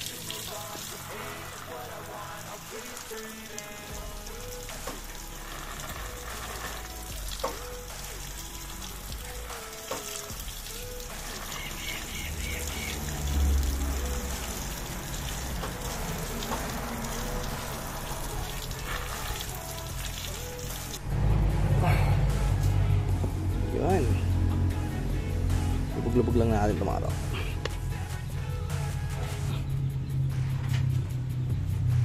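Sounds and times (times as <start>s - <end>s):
water pouring onto soil: 0.0s - 21.0s
background music with bass: 0.0s - 32.0s.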